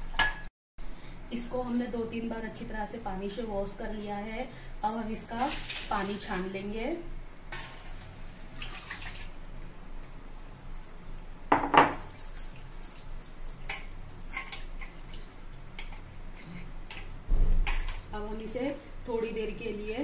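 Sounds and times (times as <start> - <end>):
water draining and dripping: 8.0 - 11.2, 12.0 - 18.8.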